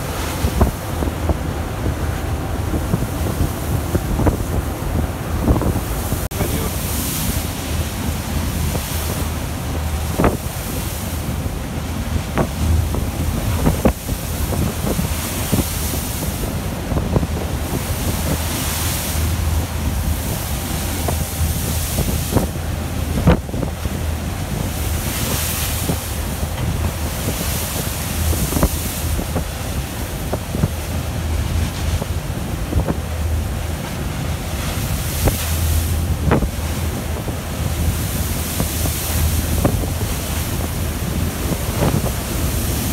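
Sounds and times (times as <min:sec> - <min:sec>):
waves crashing: 0:00.0 - 0:42.9
wind buffeting microphone: 0:00.0 - 0:42.9.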